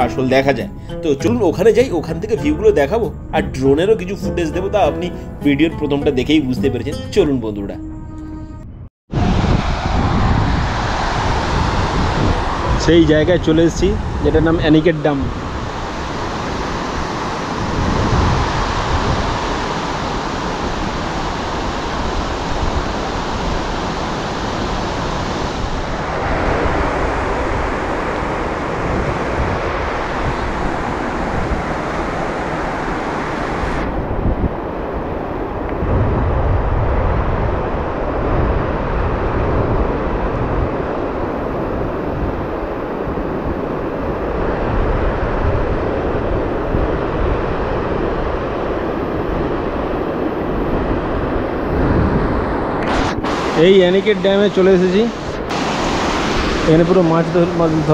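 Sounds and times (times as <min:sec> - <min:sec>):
water rushing over weir: 0:51.7 - 0:57.9.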